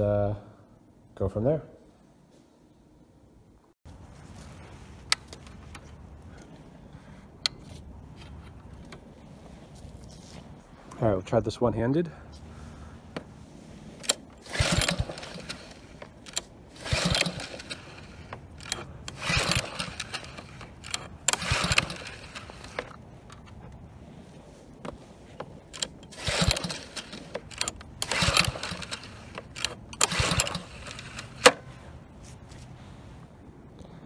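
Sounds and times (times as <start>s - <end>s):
engine recoil starter cranking: 14.0s - 23.4s, 25.6s - 31.6s.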